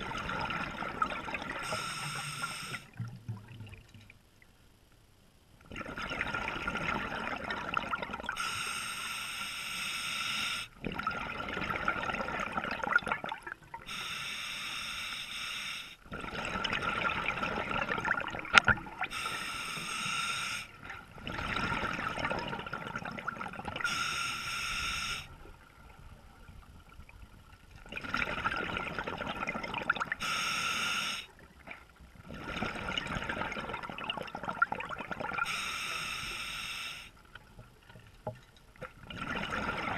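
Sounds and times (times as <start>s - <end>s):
regulator breath hiss: 1.6s - 2.9s, 8.4s - 10.8s, 13.9s - 16.0s, 19.1s - 20.8s, 23.9s - 25.3s, 30.2s - 31.3s, 35.5s - 37.2s
exhaled bubbles rushing: 5.7s - 8.4s, 10.8s - 13.8s, 16.1s - 19.1s, 20.9s - 23.9s, 27.8s - 30.2s, 32.2s - 35.5s, 39.0s - 39.9s.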